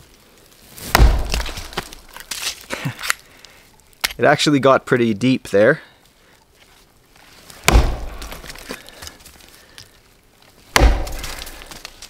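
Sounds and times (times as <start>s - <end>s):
axe chopping into tree trunk: 0.8s - 2.5s, 7.6s - 8.8s, 10.7s - 11.9s.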